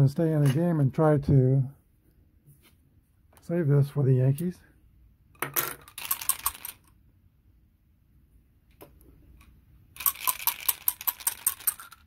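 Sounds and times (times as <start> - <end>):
dice rattling and clattering: 5.4 - 6.9, 10.0 - 12.0.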